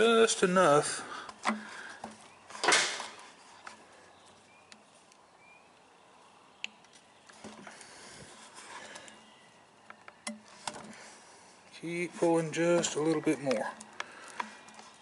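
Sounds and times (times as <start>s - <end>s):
rustle: 0.0s - 15.0s
small clicks and scrapes: 9.9s - 11.2s, 12.7s - 15.0s.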